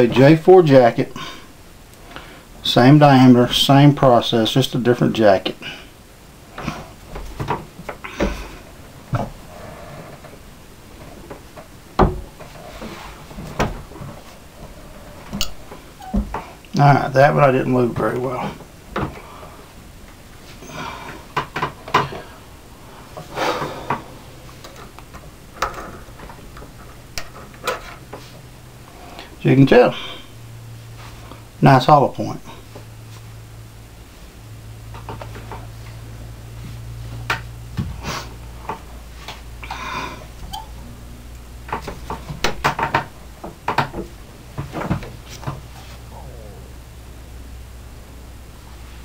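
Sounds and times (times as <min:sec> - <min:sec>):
scraping noise: 0:23.2 - 0:24.6.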